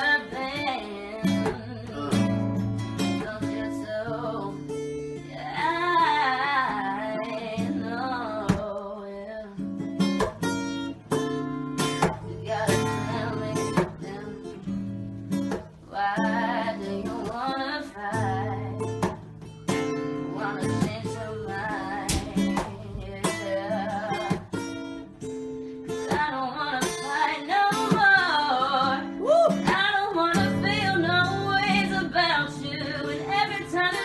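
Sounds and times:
person singing: 0.0 - 9.6, 12.2 - 14.6, 20.2 - 24.6, 25.9 - 34.0
acoustic guitar strumming: 0.0 - 34.0.

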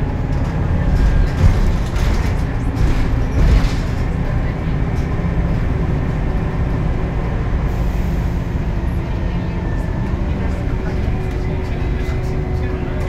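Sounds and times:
bus engine rumble: 0.0 - 13.0
bus jolts: 0.0 - 13.0.

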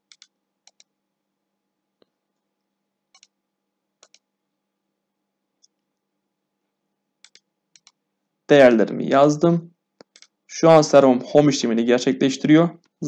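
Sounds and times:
computer mouse clicks: 0.0 - 0.9, 3.1 - 3.4, 4.0 - 4.3, 7.2 - 8.0, 10.0 - 10.4.

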